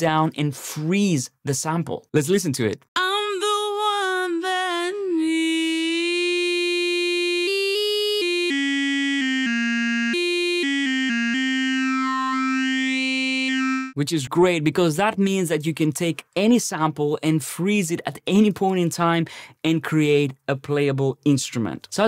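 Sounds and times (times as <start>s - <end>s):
frozen sung vowel tone: 3.0s - 14.0s.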